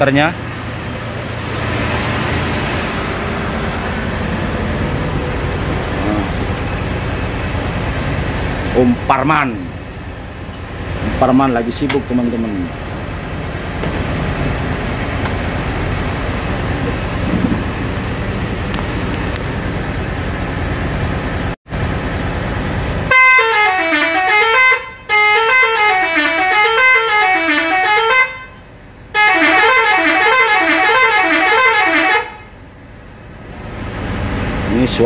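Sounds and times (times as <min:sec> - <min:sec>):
bus multi-tone musical horn: 0:23.0 - 0:32.6.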